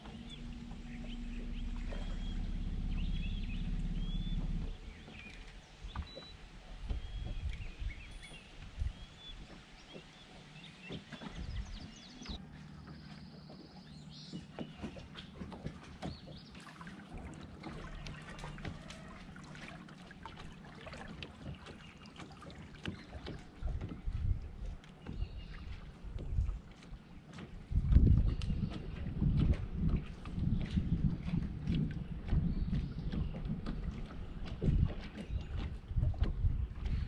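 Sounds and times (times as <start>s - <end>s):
low uneven rumble: 0.0s - 37.0s
water lapping against boat hull: 0.0s - 37.0s.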